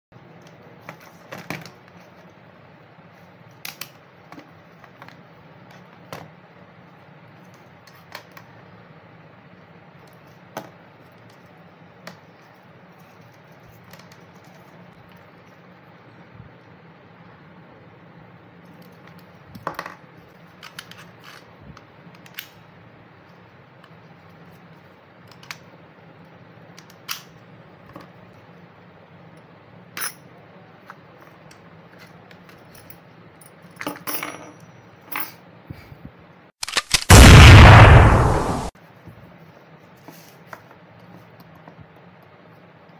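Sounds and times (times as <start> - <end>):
loud explosion-like blast: 36.9 - 38.7.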